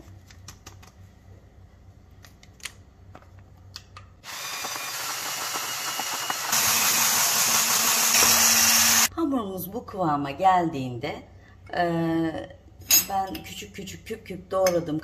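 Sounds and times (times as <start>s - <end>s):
hand blender whirring in batter: 4.2s - 9.1s.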